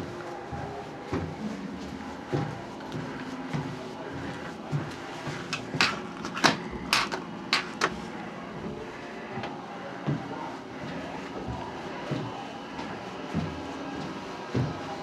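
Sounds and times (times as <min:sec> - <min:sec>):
sharp clicks and knocks: 0:05.5 - 0:08.0.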